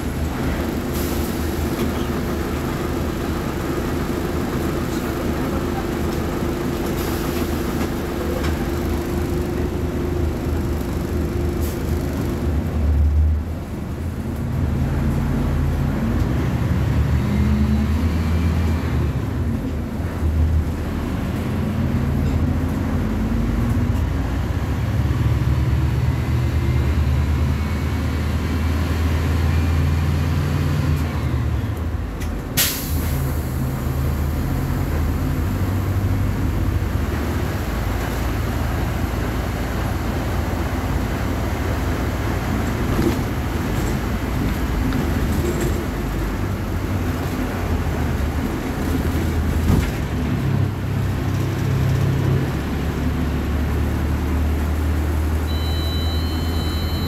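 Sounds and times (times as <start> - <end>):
bus diesel engine revving: 0.0 - 31.1.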